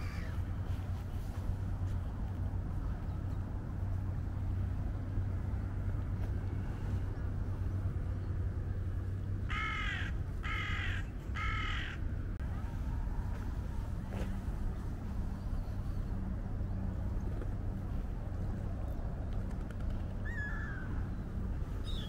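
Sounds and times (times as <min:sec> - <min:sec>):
bird calling: 0:00.0 - 0:00.5, 0:20.1 - 0:22.0.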